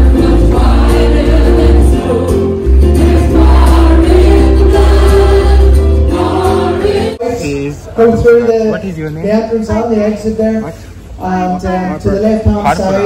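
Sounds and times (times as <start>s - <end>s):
deep bass: 0.0s - 6.6s
singers on microphones: 0.0s - 8.6s
acoustic guitar: 0.0s - 9.8s
keyboard: 0.0s - 13.0s.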